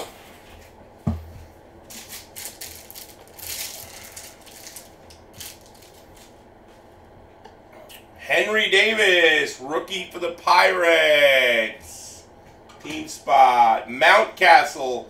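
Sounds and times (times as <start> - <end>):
knock on table: 1.0 - 1.3
foil card pack crinkling: 1.9 - 6.4.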